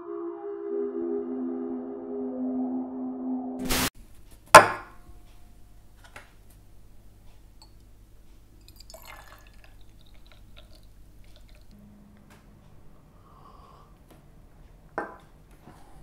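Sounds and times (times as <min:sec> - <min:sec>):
tea pouring into glass: 0:08.6 - 0:11.8.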